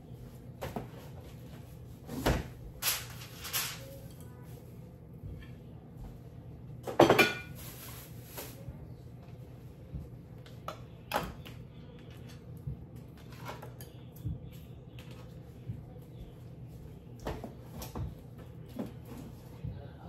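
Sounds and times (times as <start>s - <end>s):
dishes clattering: 6.8s - 7.7s.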